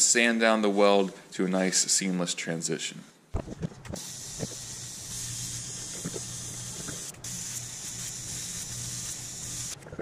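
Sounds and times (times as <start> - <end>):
welding arc hissing: 4.0 - 9.8.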